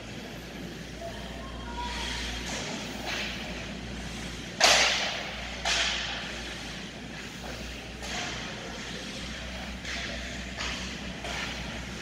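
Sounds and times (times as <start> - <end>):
hockey sticks hitting puck: 2.4 - 3.3, 4.6 - 6.2, 8.0 - 11.8.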